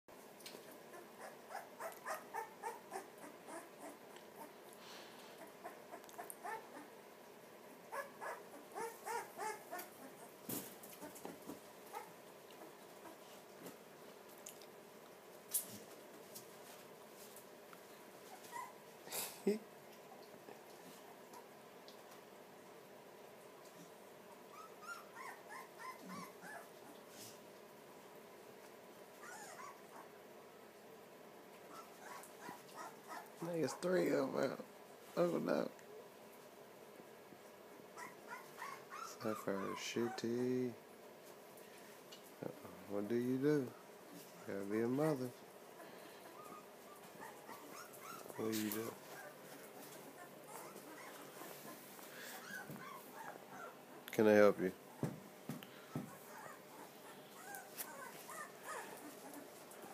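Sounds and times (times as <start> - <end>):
puppy whimpering: 0.6 - 4.6, 5.4 - 7.0, 7.9 - 13.2, 18.3 - 18.8, 24.5 - 27.0, 29.2 - 30.2, 31.7 - 33.9, 38.0 - 40.3, 45.8 - 54.0, 55.8 - 59.9.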